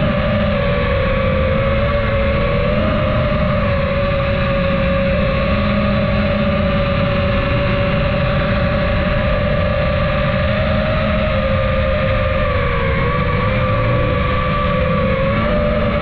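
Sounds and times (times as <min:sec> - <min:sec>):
bike motor whine: 0:00.0 - 0:16.0
wind rushing on microphone: 0:00.0 - 0:16.0.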